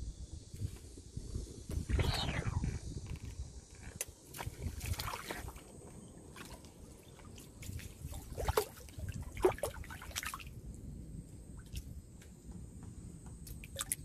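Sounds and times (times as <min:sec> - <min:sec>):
water dripping: 0:13.4 - 0:14.0.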